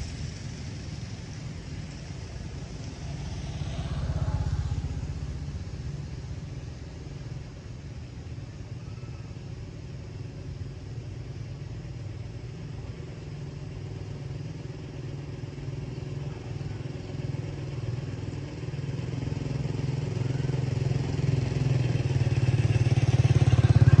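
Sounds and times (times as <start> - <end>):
vehicle engine running: 0.0 - 24.0.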